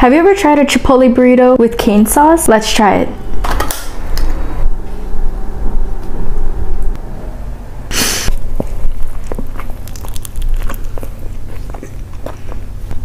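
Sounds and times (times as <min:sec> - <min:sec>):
food handling rumble: 0:02.0 - 0:13.0
puff of breath: 0:07.9 - 0:08.3.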